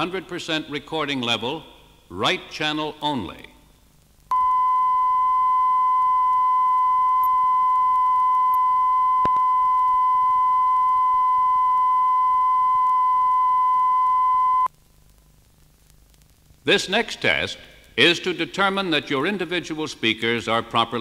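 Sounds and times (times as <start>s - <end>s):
steady test tone: 4.3s - 14.7s.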